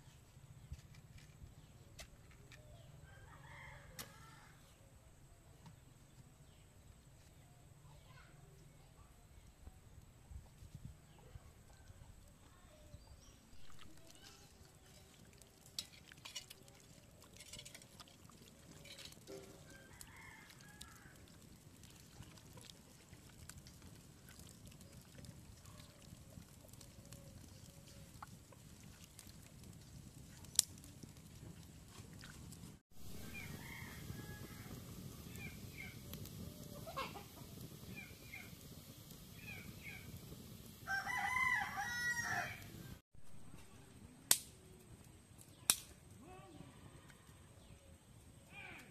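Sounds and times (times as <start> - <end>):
steady hiss: 33.0 - 41.0.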